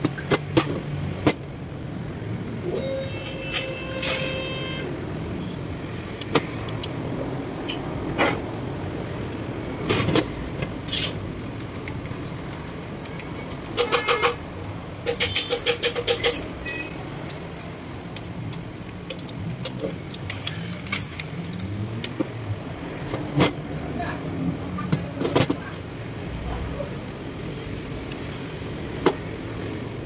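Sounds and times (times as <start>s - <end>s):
wrench clinking and scraping on metal: 3.4s - 4.6s, 13.3s - 14.4s, 15.0s - 21.9s
sharp clicks: 6.1s - 7.0s, 10.6s - 14.4s, 15.0s - 20.6s.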